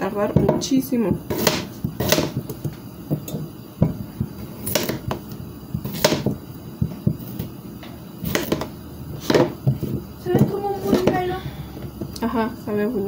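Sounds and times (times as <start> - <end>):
knife cutting potatoes: 1.2 - 2.7, 4.2 - 7.4, 8.2 - 11.2.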